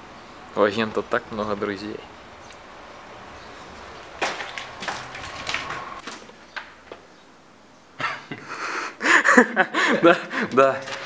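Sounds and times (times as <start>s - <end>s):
footsteps crunching on rubble: 3.6s - 7.1s, 10.5s - 11.0s.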